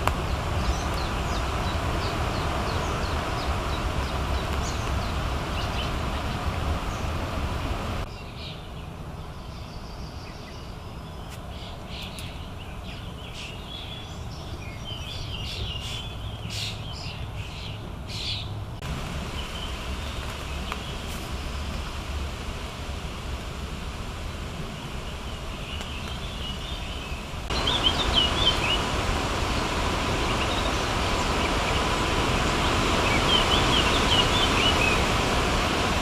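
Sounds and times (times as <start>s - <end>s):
steady low rumble: 0.0s - 8.1s, 18.7s - 36.0s
wild bird calls and chirps: 0.0s - 18.6s, 24.7s - 35.3s.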